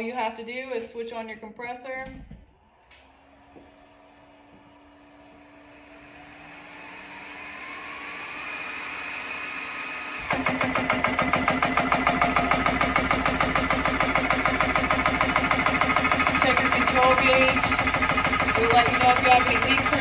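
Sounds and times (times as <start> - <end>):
compressor rising whine: 2.3 - 20.0
steady hum: 4.4 - 10.5
compressor pump pulsing: 5.4 - 20.0.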